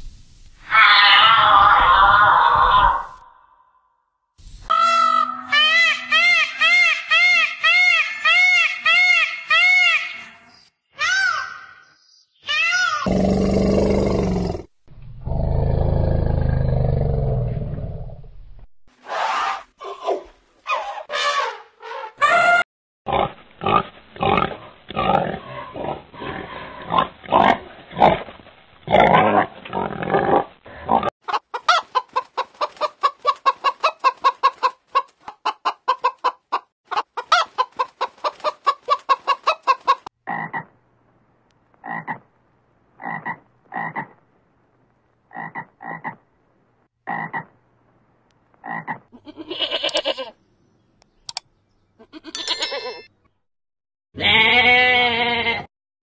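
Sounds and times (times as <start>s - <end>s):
pigs grunting: 23.1s - 28.3s, 28.9s - 31.1s
chickens clucking: 31.2s - 40.1s.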